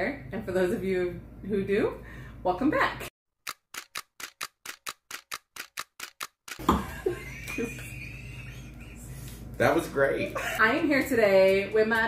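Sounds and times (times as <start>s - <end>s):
quick evenly spaced clicks: 3.4s - 6.6s
man and woman laughing: 6.6s - 9.4s, 10.0s - 11.0s.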